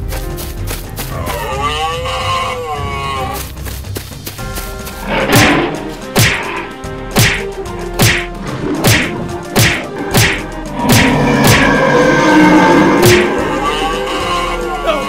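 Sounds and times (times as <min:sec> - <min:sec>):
background music: 0:00.0 - 0:15.0
whacking hit sound effects: 0:05.3 - 0:06.6, 0:07.2 - 0:11.7.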